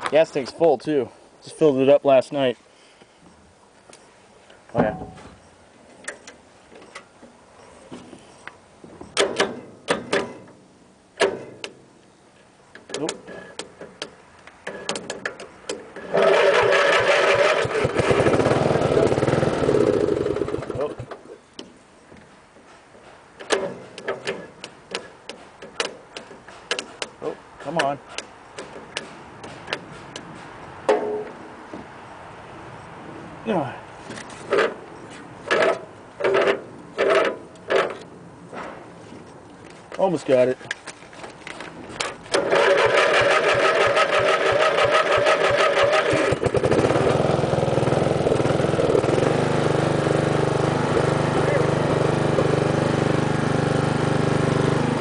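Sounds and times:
lawn tractor engine running: 16.0 - 21.2, 42.3 - 55.0
starter cranking engine: 16.0 - 21.2, 42.3 - 55.0.

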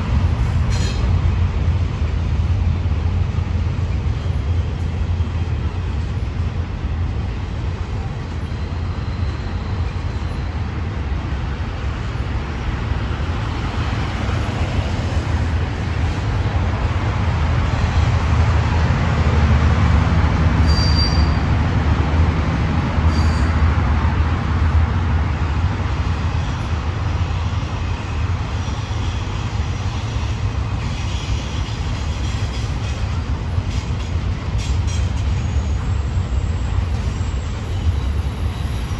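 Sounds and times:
road traffic passing: 0.0 - 38.9
train cars rumbling on rails: 0.0 - 38.9
short high squeaks: 20.6 - 21.4.

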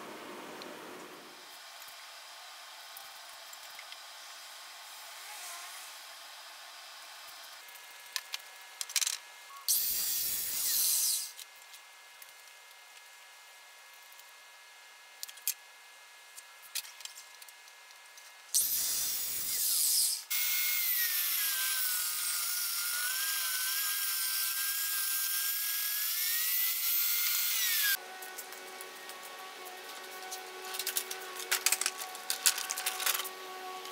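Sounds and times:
table saw cutting wood: 9.7 - 11.4, 18.6 - 33.9.

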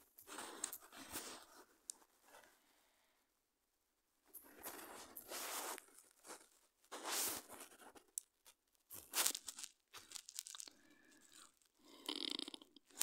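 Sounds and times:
rustling crinkling bursts: 9.0 - 11.7.

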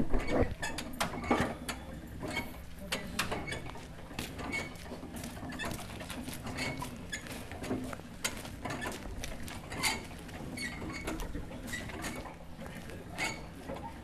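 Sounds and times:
short high squeaks: 13.2 - 13.5.

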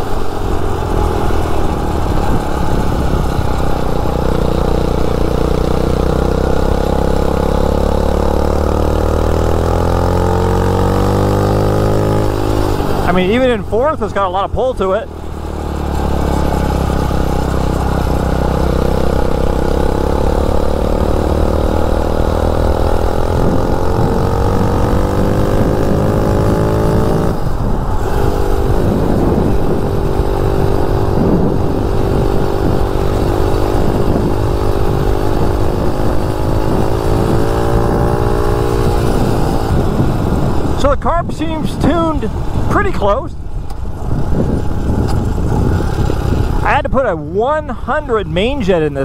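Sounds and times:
wind rumble on microphone: 0.0 - 7.4, 20.6 - 48.0
dirt bike engine revving: 0.0 - 43.2.

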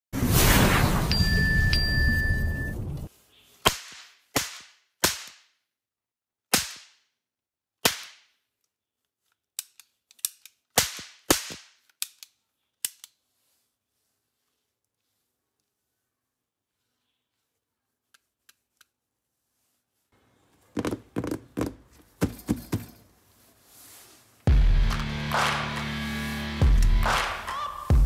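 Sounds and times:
whoosh with a ding: 0.5 - 2.9
toy cap gun cracks: 9.6 - 13.2.

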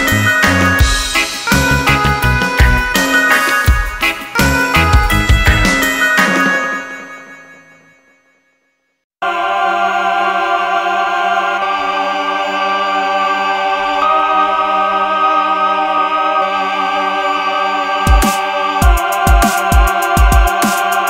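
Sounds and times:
sustained layered music chords: 0.0 - 6.3
drum beat: 0.0 - 6.5, 18.1 - 21.0.

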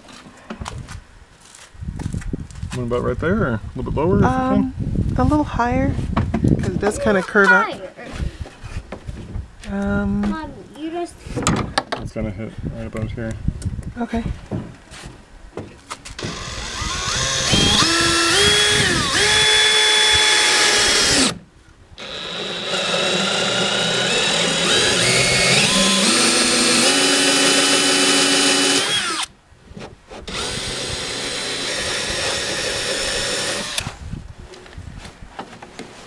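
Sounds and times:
cordless drill boring plastic: 16.2 - 21.4, 22.0 - 29.3, 30.3 - 33.9.

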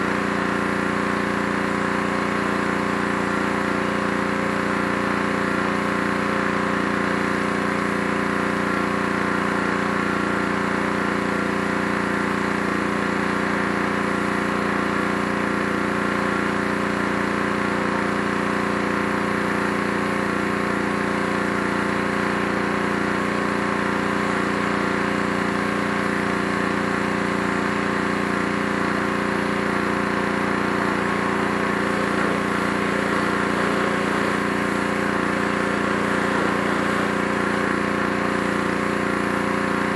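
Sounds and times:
small gas engine running: 0.0 - 39.9
high-pressure spray hissing on wood: 30.0 - 39.9.

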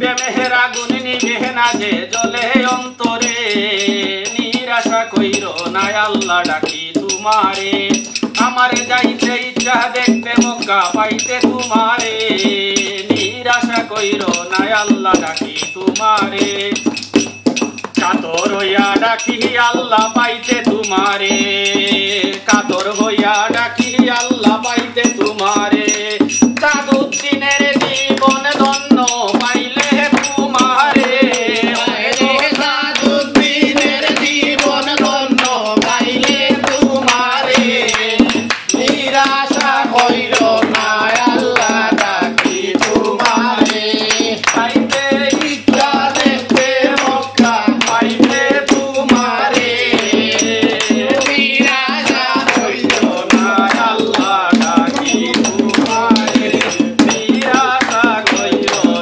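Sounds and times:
voices singing folk song: 0.0 - 17.2, 17.9 - 59.0
barrel drum: 0.0 - 59.0
frame drum: 0.0 - 59.0
jingling hand cymbals: 0.0 - 59.0
hand clapping: 16.6 - 19.0, 26.2 - 59.0.

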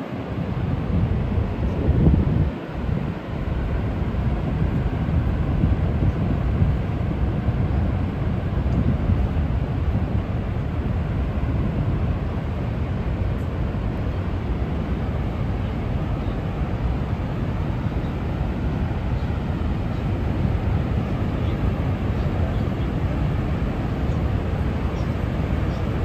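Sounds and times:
river water rushing: 0.0 - 26.0.

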